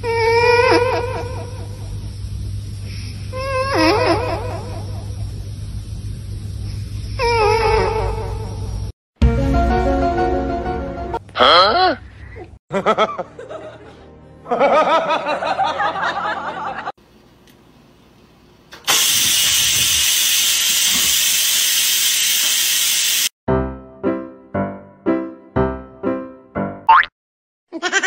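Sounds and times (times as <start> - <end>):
rice cooker steam hissing: 18.8 - 23.3.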